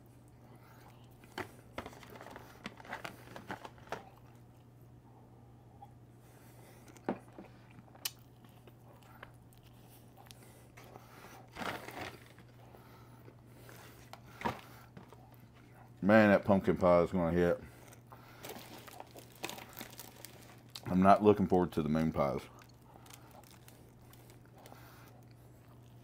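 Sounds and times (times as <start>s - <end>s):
snack packaging crinkling: 0.9s - 4.4s, 11.4s - 12.6s, 17.8s - 26.0s
chewing: 6.6s - 14.3s, 14.9s - 16.0s, 17.7s - 20.9s, 22.5s - 26.0s.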